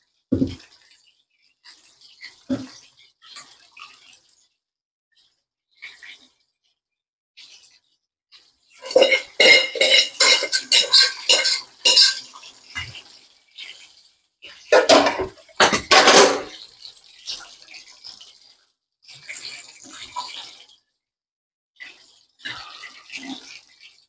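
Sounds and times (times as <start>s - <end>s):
metal utensils clattering on dishes: 8.8s - 13.0s, 14.7s - 16.6s.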